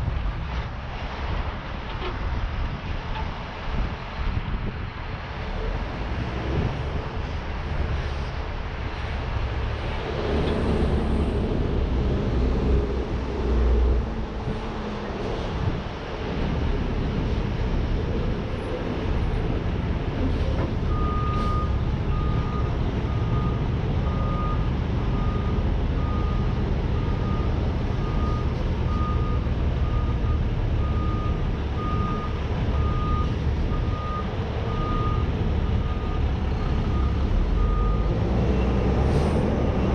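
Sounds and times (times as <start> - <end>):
heavy truck engine rumbling: 0.0 - 39.9
reversing alarm beeping: 20.9 - 38.8.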